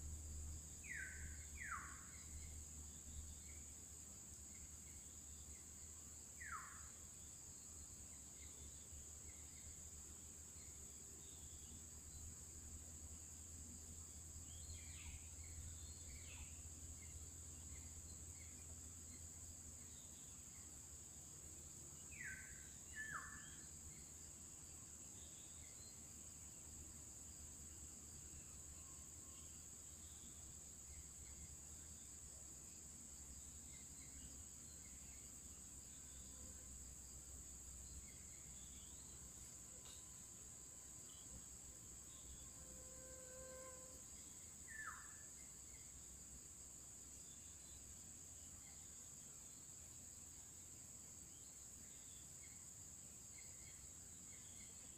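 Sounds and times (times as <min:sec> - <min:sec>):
high-pitched insect chorus: 0:00.0 - 0:54.9
faint bird chirps: 0:00.8 - 0:03.7, 0:04.5 - 0:09.8, 0:22.0 - 0:24.2, 0:42.0 - 0:46.0.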